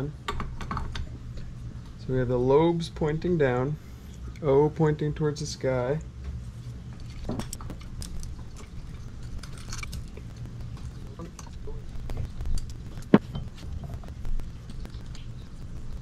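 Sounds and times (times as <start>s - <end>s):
low hum: 6.4s - 16.0s
small metal parts clicking: 9.2s - 10.3s.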